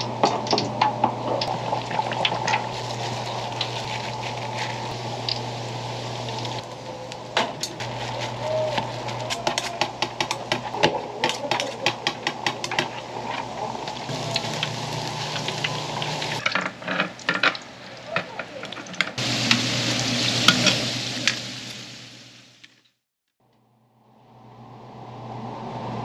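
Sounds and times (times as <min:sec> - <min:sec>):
fish cakes sizzling in oil: 0:00.0 - 0:16.5, 0:19.2 - 0:22.7.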